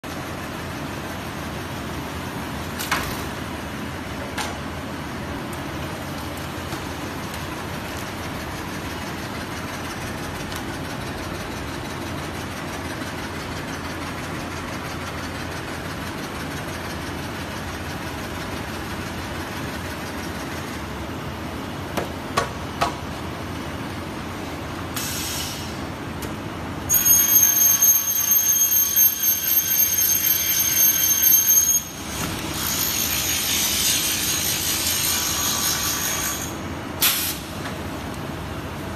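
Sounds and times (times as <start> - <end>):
workshop machine noise: 0.0 - 38.9
saw screeching through aluminum: 26.9 - 36.7.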